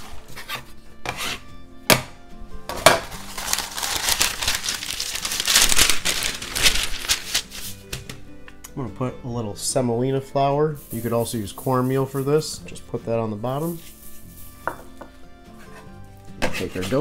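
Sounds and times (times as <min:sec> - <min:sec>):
paper crinkling and rustling: 0:03.0 - 0:07.9.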